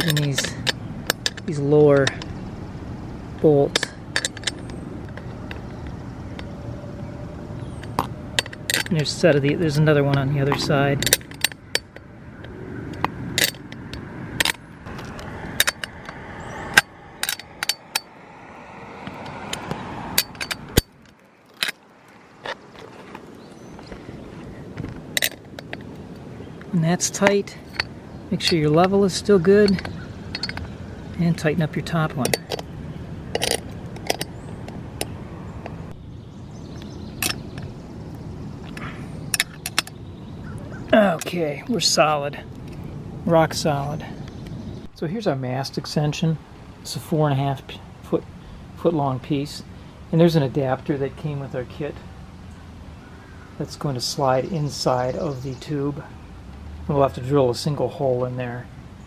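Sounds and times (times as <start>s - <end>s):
wrench clicking on metal bolts: 0.0s - 2.3s, 3.7s - 5.6s, 7.9s - 9.1s, 10.1s - 12.0s, 13.0s - 14.6s, 16.8s - 18.1s, 27.2s - 30.7s, 33.3s - 35.2s, 38.7s - 40.0s
low background rumble: 0.0s - 45.5s
steady background rush: 10.3s - 28.3s
ratchet wrench clicking: 16.8s - 18.1s.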